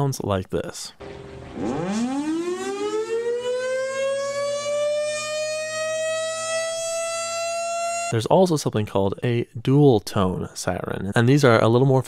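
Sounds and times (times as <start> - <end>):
rotating horn siren winding up: 1.0 - 8.1.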